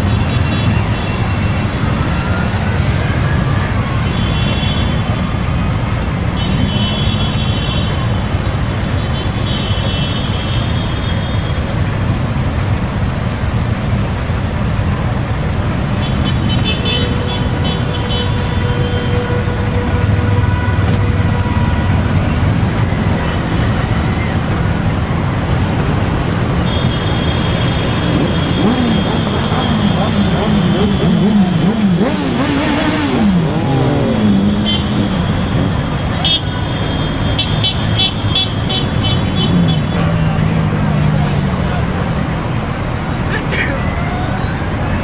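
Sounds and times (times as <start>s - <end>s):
motorcycle horn toots: 26.6s - 40.0s
motorcycle engines passing slowly: 27.6s - 36.1s.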